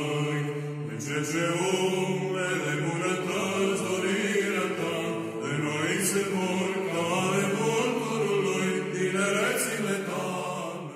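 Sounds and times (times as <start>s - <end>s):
choir chanting long notes: 0.0s - 10.9s.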